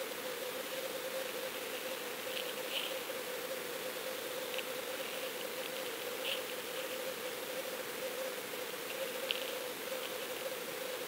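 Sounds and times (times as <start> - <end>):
steady hiss: 0.0 - 11.0
faint crackles: 0.3 - 11.0.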